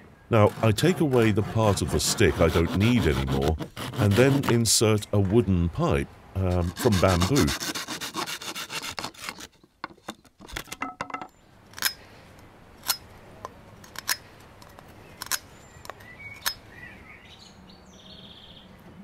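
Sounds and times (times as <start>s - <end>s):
hand saw cutting wood: 0.4s - 4.6s, 6.5s - 9.6s.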